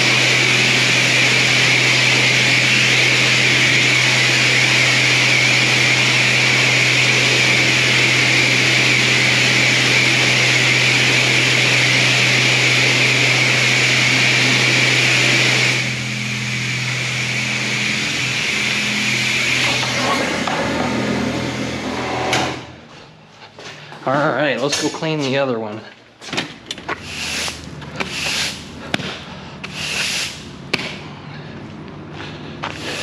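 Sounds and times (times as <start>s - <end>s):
machine humming: 0.0s - 22.9s
loud hiss: 29.7s - 30.5s.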